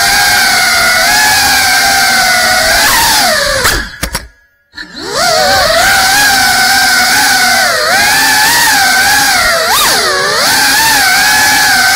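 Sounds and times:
drone motors buzzing: 0:00.0 - 0:11.9.

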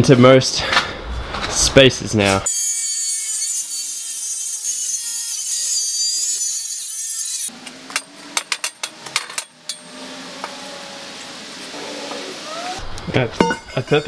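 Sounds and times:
angle grinder cutting steel: 0:02.5 - 0:12.8
metallic clanks and knocks: 0:13.4 - 0:14.0.

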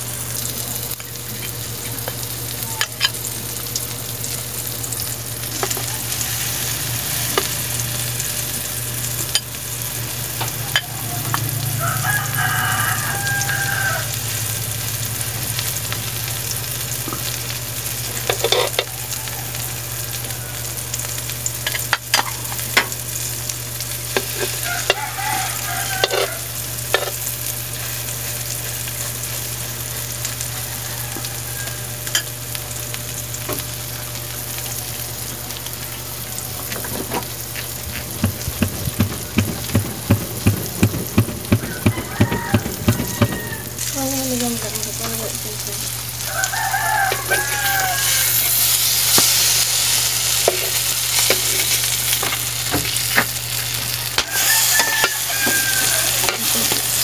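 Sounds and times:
batter sizzling in oil: 0:00.0 - 0:57.0
rooster crowing: 0:05.5 - 0:08.3, 0:09.3 - 0:16.0, 0:18.0 - 0:21.3, 0:24.2 - 0:29.0, 0:29.6 - 0:32.4, 0:37.8 - 0:44.0, 0:46.0 - 0:57.0
metal spoon scraping a wok: 0:18.3 - 0:18.9, 0:24.2 - 0:25.3, 0:25.9 - 0:27.2.

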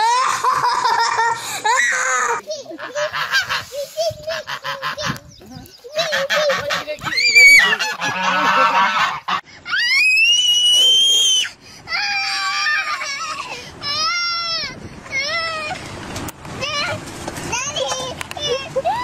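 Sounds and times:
child crying: 0:00.0 - 0:02.8, 0:05.9 - 0:07.8, 0:11.2 - 0:15.8, 0:18.4 - 0:19.0
geese honking: 0:05.9 - 0:09.4.

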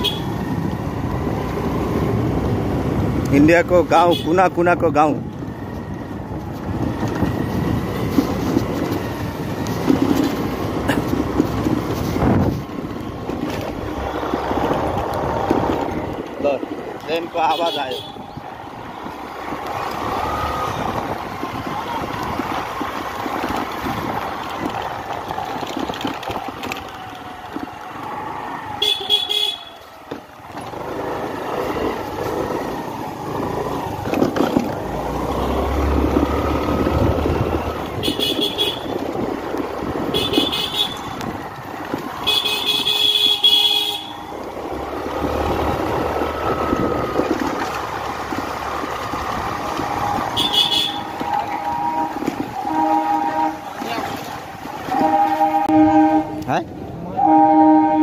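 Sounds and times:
vehicle horn beeping: 0:00.0 - 0:00.4, 0:17.4 - 0:18.4, 0:28.8 - 0:29.8, 0:37.9 - 0:39.0, 0:40.1 - 0:41.2, 0:42.2 - 0:44.3, 0:50.3 - 0:54.2, 0:54.8 - 0:56.5, 0:57.2 - 0:58.0
wind rush: 0:05.5 - 0:17.0.

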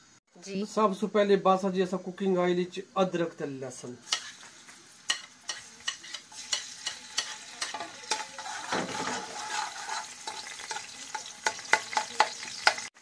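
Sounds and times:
food sizzling in oil: 0:00.0 - 0:13.0
spoon scraping a pan: 0:04.0 - 0:12.9.

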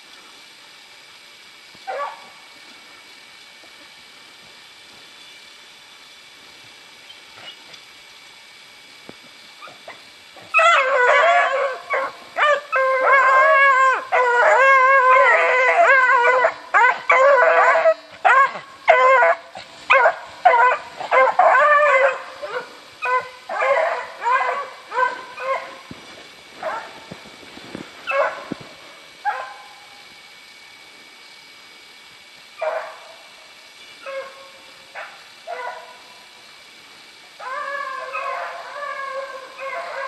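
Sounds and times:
hounds baying and barking: 0:10.5 - 0:25.8, 0:37.4 - 0:40.0.

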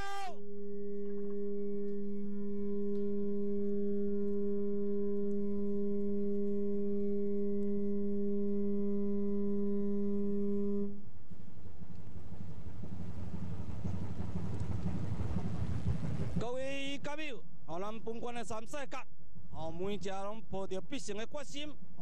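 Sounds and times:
ship's horn blast: 0:02.4 - 0:11.0.

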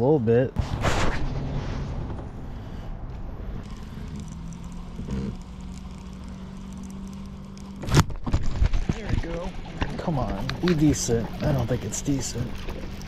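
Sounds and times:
wind and water rumble: 0:00.0 - 0:13.0
electric outboard motor humming: 0:03.6 - 0:13.0.

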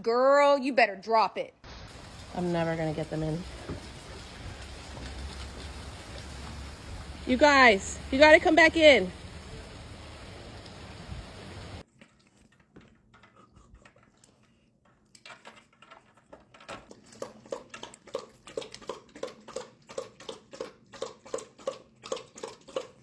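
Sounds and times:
dog lapping water: 0:16.7 - 0:23.0.

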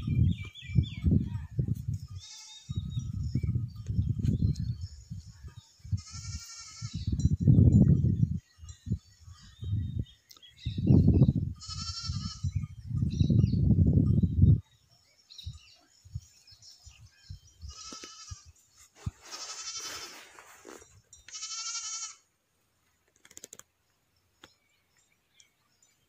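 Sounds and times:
goats bleating: 0:19.3 - 0:20.1, 0:21.3 - 0:22.2.

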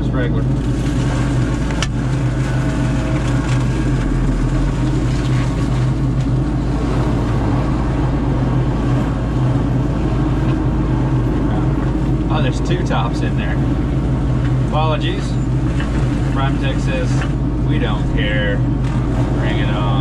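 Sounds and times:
diesel engine droning: 0:00.0 - 0:20.0.

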